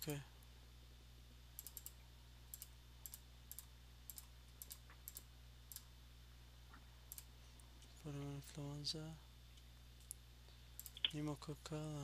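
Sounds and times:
low steady hum: 0.0s - 12.0s
mouse and keyboard clicks: 10.8s - 11.2s.

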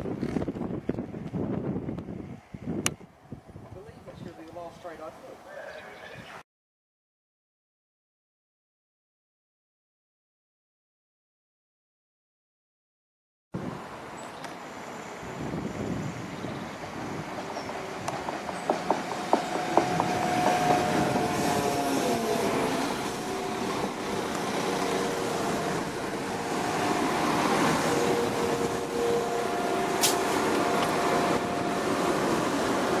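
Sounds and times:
train engine and transmission: 13.6s - 33.0s
sharp hiss: 29.9s - 30.6s.

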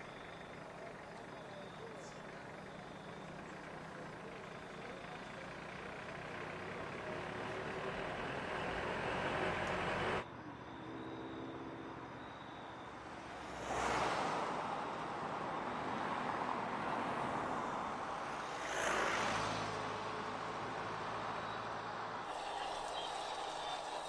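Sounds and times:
van driving past: 0.0s - 24.0s
car passing close: 5.6s - 12.1s, 12.9s - 24.0s.

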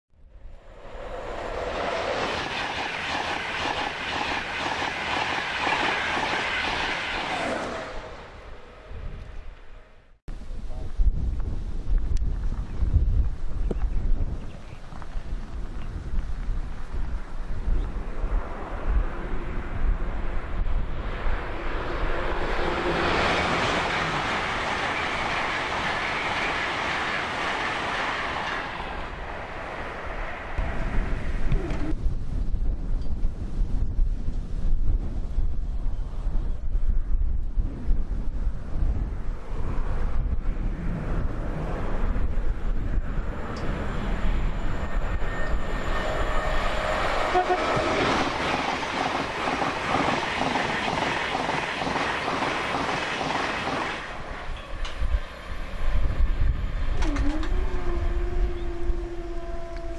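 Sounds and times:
train passing at speed: 0.2s - 10.2s, 16.2s - 32.0s, 38.2s - 59.9s
wind buffeting microphone: 0.3s - 59.9s.

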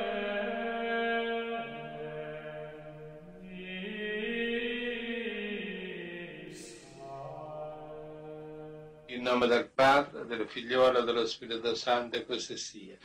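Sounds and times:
slow sung chant: 0.0s - 9.6s.

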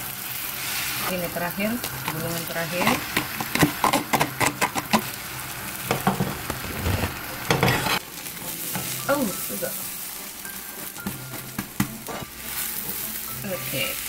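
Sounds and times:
egg sizzling in a frying pan: 0.0s - 14.0s
spatula scraping a pan: 2.0s - 5.1s, 6.2s - 8.1s.

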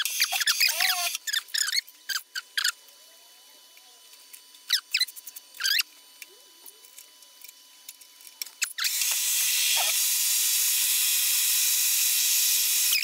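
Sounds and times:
drill boring into metal: 8.6s - 13.0s.

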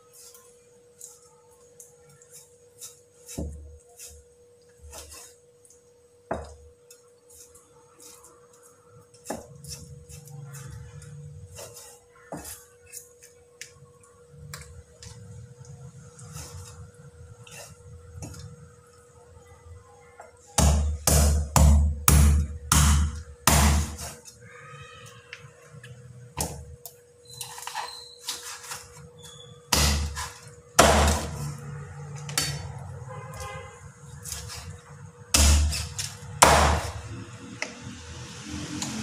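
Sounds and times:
heavy cleaver chops: 29.7s - 31.5s, 35.3s - 37.0s.

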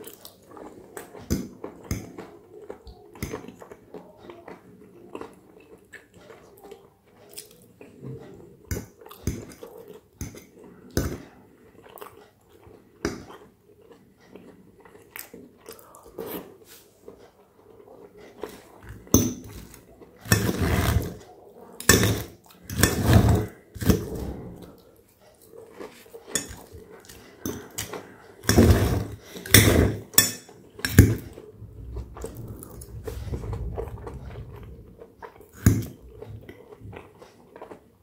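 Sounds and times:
knife sawing crispy crust: 20.2s - 21.2s, 21.9s - 24.1s, 27.8s - 30.0s
cutlery clinking on plate: 26.3s - 26.7s.

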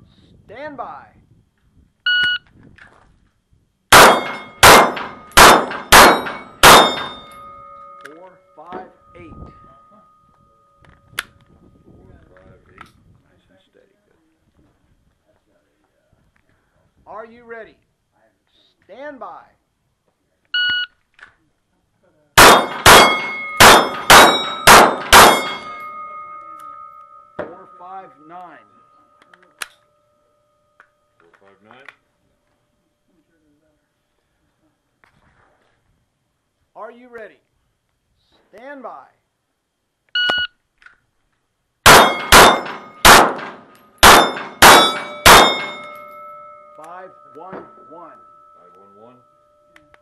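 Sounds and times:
pistol shots: 3.9s - 7.3s, 22.4s - 26.9s, 41.9s - 46.0s
steel targets ringing: 3.9s - 11.0s, 22.4s - 31.2s, 41.9s - 50.0s.

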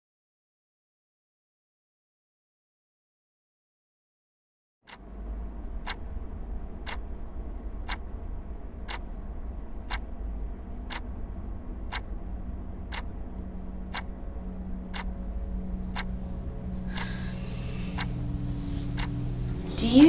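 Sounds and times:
low steady hum: 4.9s - 20.0s
wall clock ticking: 4.9s - 20.0s
low drone tone: 5.0s - 20.0s.

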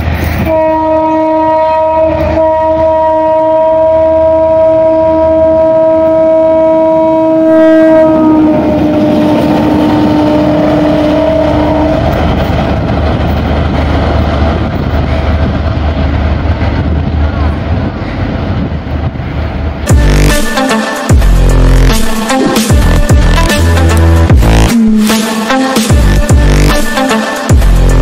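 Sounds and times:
locomotive engine and wheel noise: 0.0s - 0.6s, 8.4s - 19.9s
locomotive horn chord: 0.4s - 12.2s, 19.9s - 28.0s.

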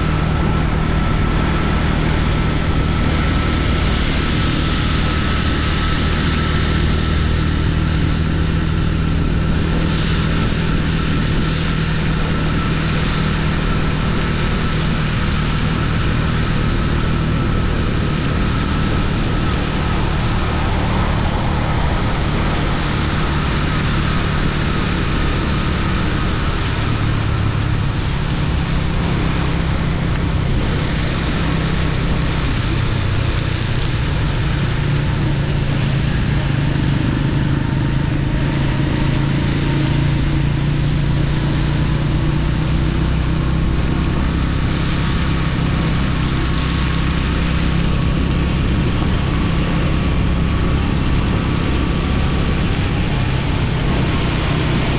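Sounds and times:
motorcycle engine running: 0.0s - 54.9s
tyre noise on wet road: 0.0s - 54.9s.

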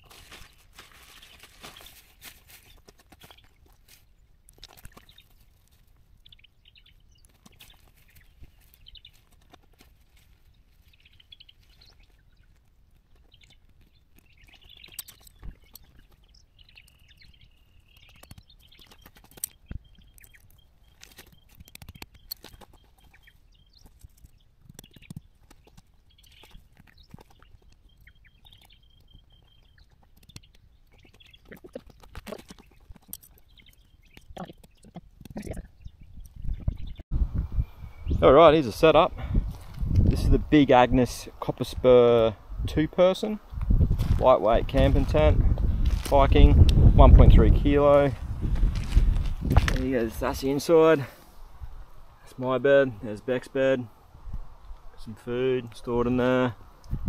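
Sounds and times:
tent rustles and clicks: 0.0s - 6.0s, 7.1s - 35.6s, 43.2s - 46.9s, 47.8s - 51.4s
footsteps on gravel: 43.6s - 51.2s.

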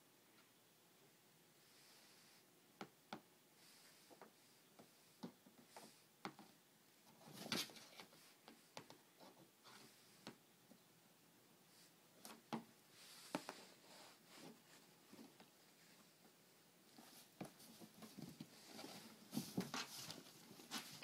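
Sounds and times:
scratchy rustle: 17.0s - 21.0s.

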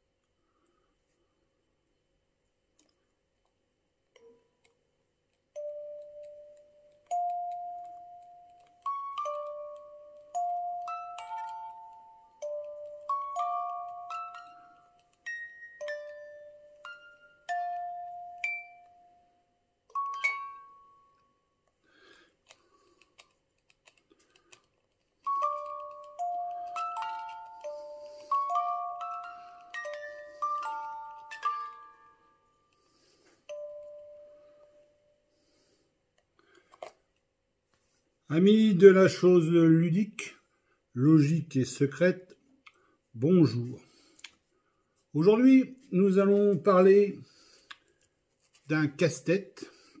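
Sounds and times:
music box notes: 5.5s - 21.6s, 25.2s - 35.3s.

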